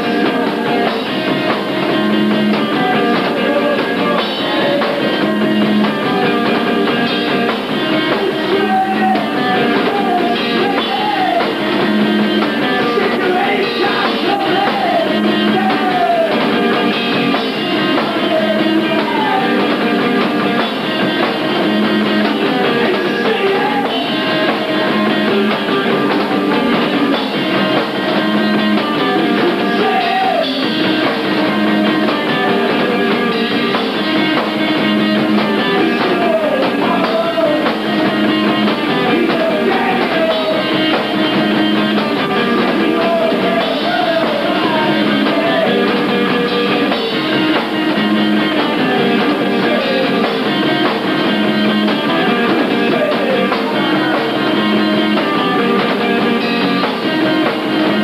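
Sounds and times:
distorted electric guitars: 0.0s - 58.0s
drums: 0.0s - 58.0s
shouted vocals: 7.8s - 20.3s, 21.6s - 27.2s, 29.0s - 33.9s, 34.8s - 58.0s.

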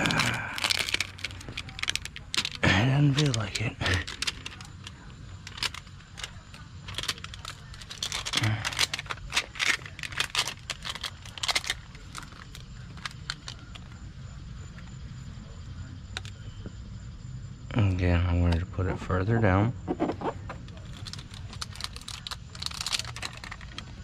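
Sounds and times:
tape crinkling and crackling: 0.0s - 14.0s, 20.0s - 24.0s.

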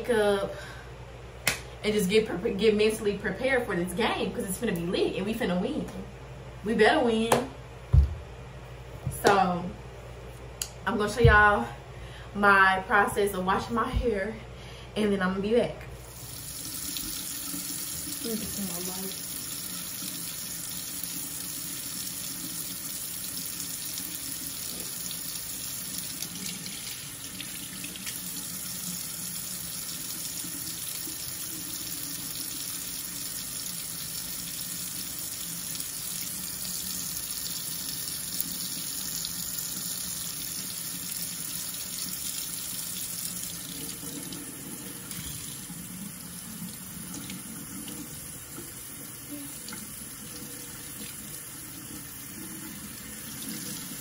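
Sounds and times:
faucet running into steel sink: 16.1s - 54.0s.

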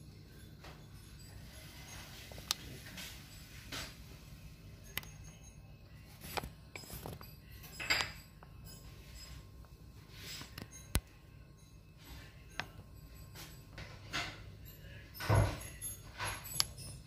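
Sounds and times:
low steady hum: 0.0s - 17.0s
light sharp clicks and clinks: 4.8s - 17.0s.

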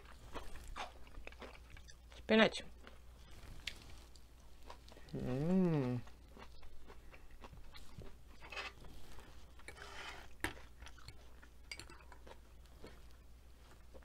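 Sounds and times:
chewing with mouth clicks: 0.0s - 14.0s.

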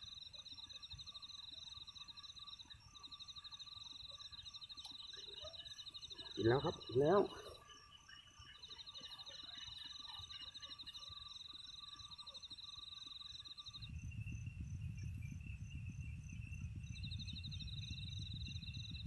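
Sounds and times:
high insect tones: 0.0s - 15.7s
cricket trill: 0.0s - 19.0s
low rumble: 13.8s - 19.0s.

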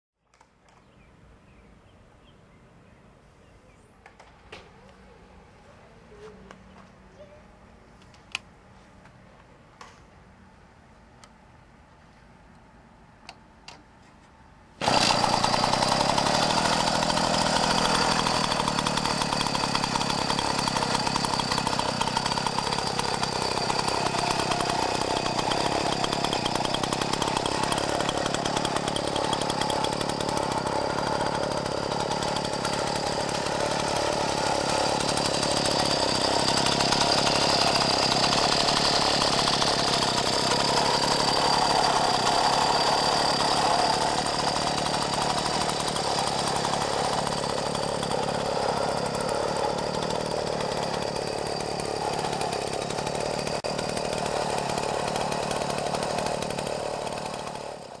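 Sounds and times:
moped two-stroke engine running: 14.8s - 58.0s.

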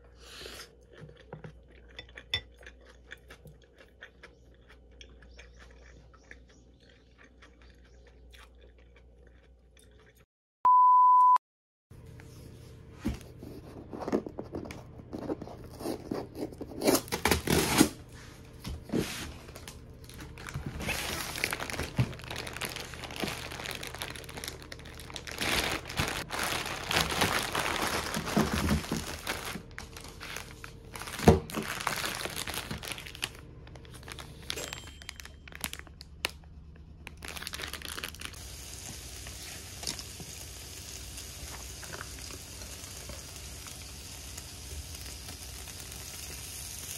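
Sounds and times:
packing tape tearing: 15.8s - 18.0s, 20.2s - 34.6s
plastic wrappers crinkling: 19.4s - 38.4s
chicken sizzling on grill plate: 38.4s - 46.9s.

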